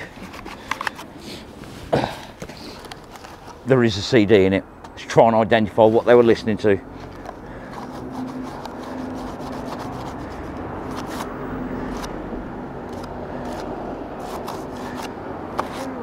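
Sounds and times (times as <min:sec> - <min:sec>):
rubbing and scraping on disc: 0:00.0 - 0:01.1, 0:02.4 - 0:03.7, 0:07.0 - 0:12.2, 0:12.8 - 0:16.0.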